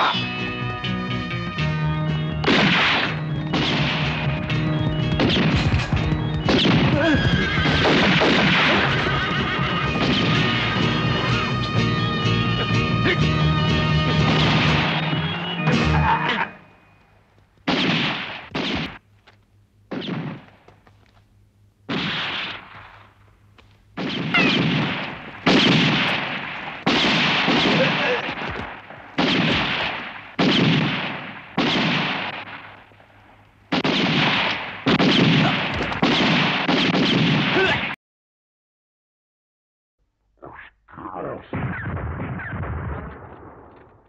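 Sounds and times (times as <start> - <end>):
gunshots ringing out: 2.4 - 11.0, 14.1 - 16.6, 17.6 - 19.0, 19.9 - 20.7, 21.9 - 23.2, 24.0 - 38.0, 41.4 - 44.0.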